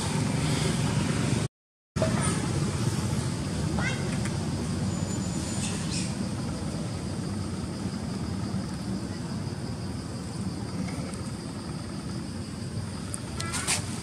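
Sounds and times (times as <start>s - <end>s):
steady low rumble: 5.7s - 13.4s
short high squeak: 13.4s - 13.9s.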